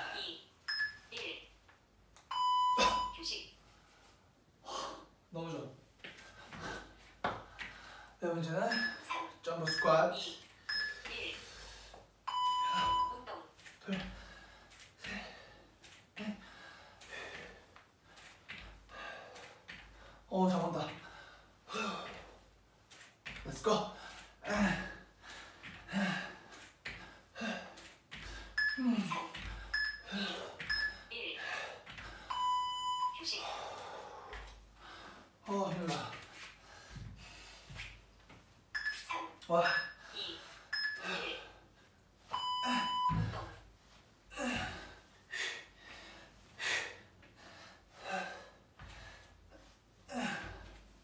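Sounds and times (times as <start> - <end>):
interval timer beeps: 0.6 - 1.2, 2.3 - 3.3, 8.6 - 11.4, 12.3 - 13.4, 28.5 - 31.1, 32.3 - 33.3, 38.8 - 40.1, 40.7 - 41.4, 42.3 - 43.4
man breathing hard: 14.0 - 20.3.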